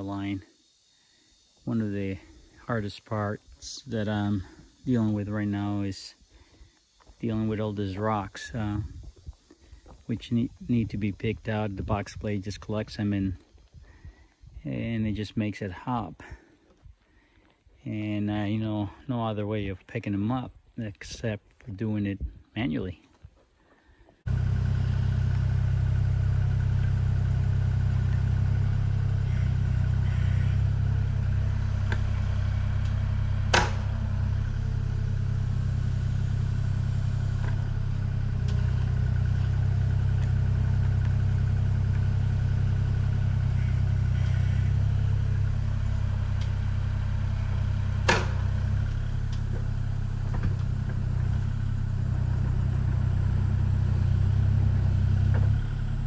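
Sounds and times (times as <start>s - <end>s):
excavator diesel engine running: 24.3s - 56.0s.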